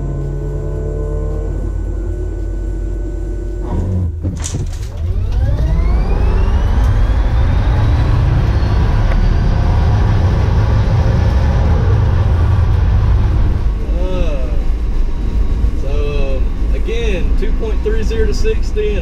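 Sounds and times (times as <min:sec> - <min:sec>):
electric motor whine: 0:00.0 - 0:04.2, 0:04.9 - 0:15.8
road and tyre rumble: 0:00.0 - 0:19.0.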